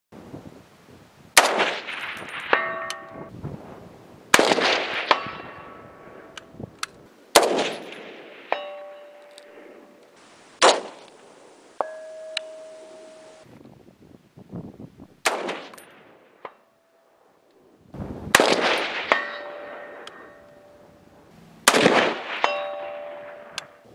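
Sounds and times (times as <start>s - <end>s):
rifle shots: 1.4s - 3.3s, 4.3s - 6.3s, 7.3s - 9.8s, 10.6s - 11.1s, 15.2s - 16.2s, 18.3s - 20.4s, 21.6s - 23.8s
bullet clanging on steel target: 1.9s - 3.3s, 7.7s - 9.5s, 11.8s - 13.4s, 22.4s - 23.8s.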